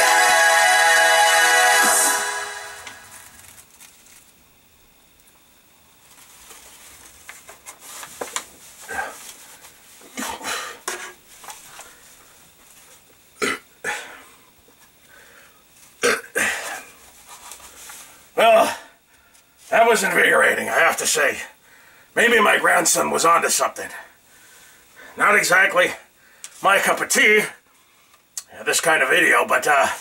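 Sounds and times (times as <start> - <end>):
music: 0.0 - 3.4.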